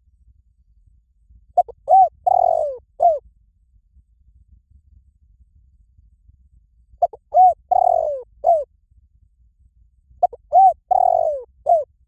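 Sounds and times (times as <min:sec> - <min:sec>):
dove cooing: 0:01.6 - 0:03.2, 0:07.0 - 0:08.7, 0:10.2 - 0:11.9.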